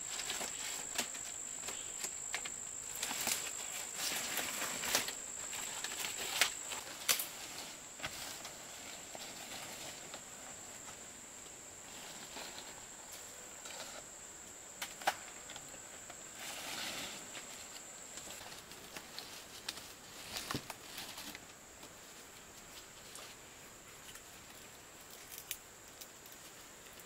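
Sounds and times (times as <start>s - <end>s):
rustling noise: 0.0s - 11.1s, 11.8s - 14.0s, 16.3s - 23.5s
insects chirring: 0.0s - 27.0s.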